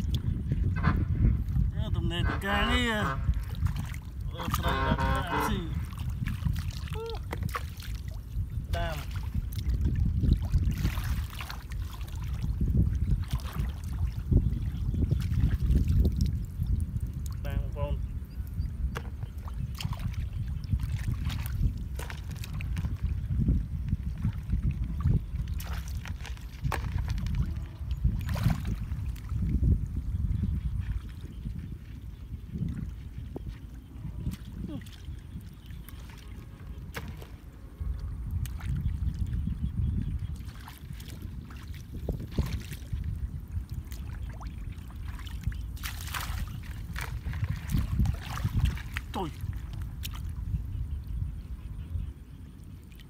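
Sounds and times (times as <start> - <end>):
steady low rumble: 0.0 - 41.6
muddy water sloshing and splashing: 0.0 - 53.0
hands splashing in muddy water: 45.0 - 50.3.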